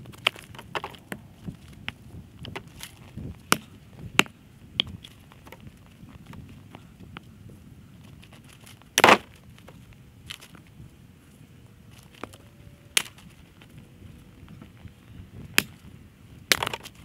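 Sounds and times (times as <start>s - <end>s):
axe splitting firewood: 0.0s - 5.6s, 8.7s - 9.4s, 15.5s - 15.8s, 16.5s - 17.0s.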